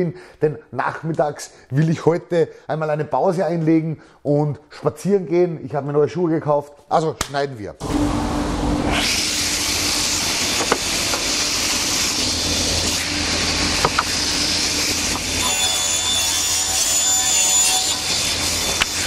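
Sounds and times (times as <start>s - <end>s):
panel saw running: 7.8s - 19.0s
saw blade whine cutting board: 7.8s - 19.0s.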